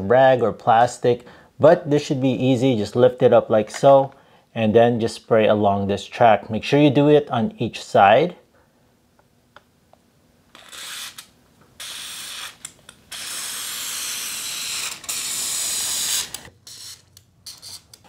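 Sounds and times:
aerosol can spraying: 11.8s - 16.9s.

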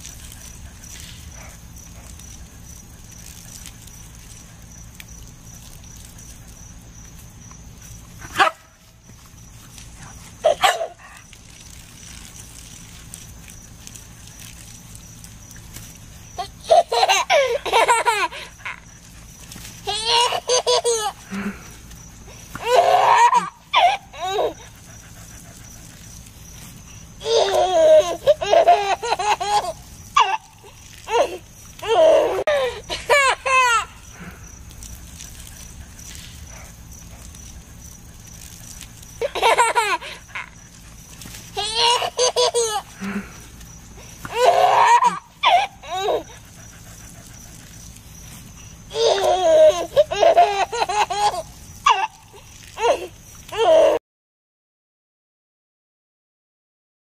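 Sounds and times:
garden hose spraying: 0.0s - 54.0s
dog barking excitedly: 8.2s - 8.8s, 10.1s - 11.3s
dog yelping: 8.2s - 8.8s, 10.4s - 11.8s, 22.6s - 26.0s, 44.3s - 47.7s
toddler laughing: 10.4s - 11.1s, 16.4s - 18.9s, 19.8s - 21.4s, 22.6s - 24.7s, 27.2s - 34.0s, 39.2s - 40.6s, 41.5s - 43.2s, 44.3s - 46.4s, 48.9s - 54.0s.

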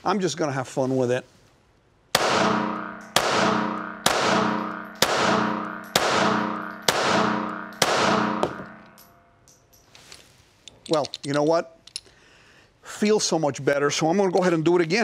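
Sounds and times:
pistol shots ringing indoors: 2.1s - 9.4s.

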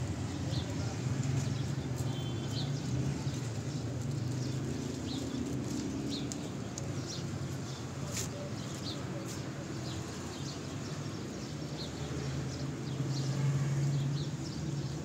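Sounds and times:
low traffic hum: 0.0s - 15.0s
footsteps on paving stones: 0.4s - 10.5s.

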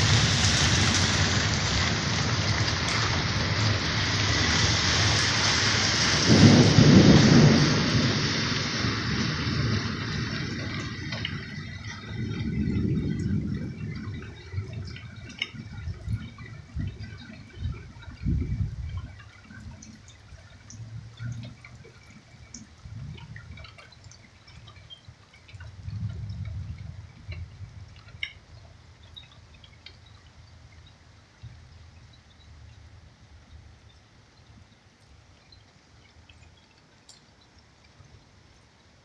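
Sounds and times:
thunder rumbling: 0.0s - 24.2s, 25.7s - 28.3s
rainwater dripping: 0.0s - 39.0s.

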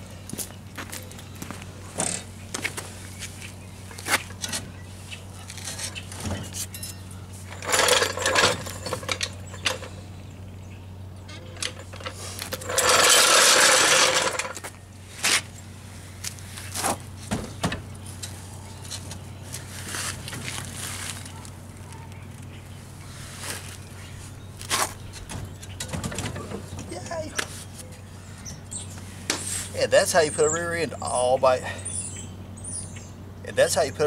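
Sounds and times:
steady low hum: 0.0s - 34.0s
metal clanks and knocks: 5.6s - 10.0s, 11.2s - 14.7s, 17.2s - 19.0s, 24.7s - 27.5s
loud rough noise: 11.6s - 15.4s.

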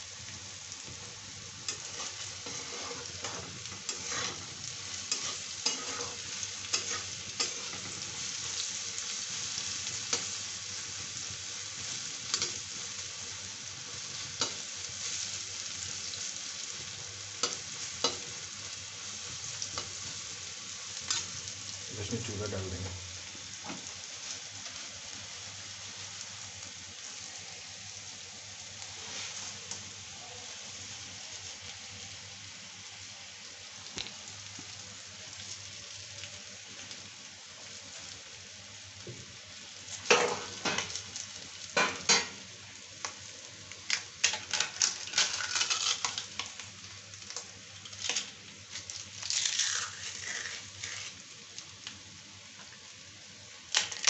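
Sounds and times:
oil sizzling in a pan: 0.0s - 54.0s
metal spatula scraping a pan: 1.7s - 8.3s.

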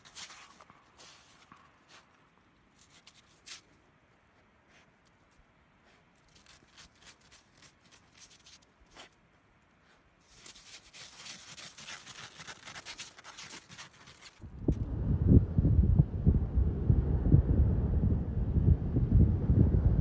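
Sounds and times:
snow crunching and crackling: 10.3s - 14.4s.

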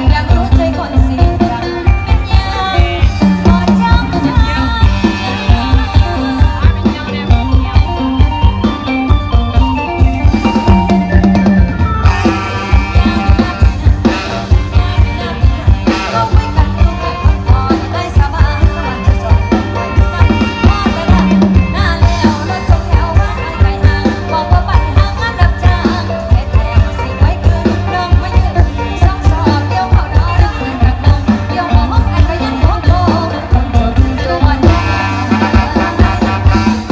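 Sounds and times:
woman singing: 0.0s - 8.5s, 12.4s - 36.9s
drum kit beat: 0.0s - 36.9s
electric guitars: 0.0s - 36.9s
keyboard: 0.0s - 36.9s.

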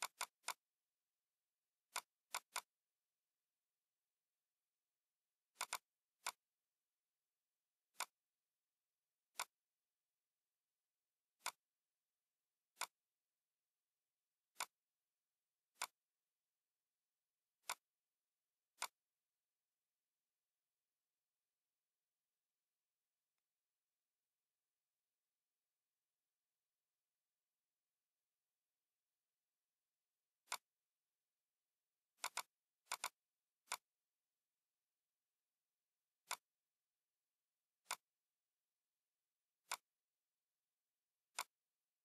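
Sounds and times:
computer mouse clicking: 0.0s - 0.7s, 1.9s - 2.8s, 5.5s - 6.5s, 7.9s - 8.3s, 9.3s - 9.6s, 11.4s - 11.7s, 12.7s - 13.1s, 14.5s - 14.9s, 15.7s - 16.1s, 17.6s - 17.9s, 18.7s - 19.1s, 30.4s - 30.8s, 32.1s - 34.0s, 36.2s - 36.6s, 37.8s - 38.2s, 39.6s - 40.0s, 41.2s - 41.7s.

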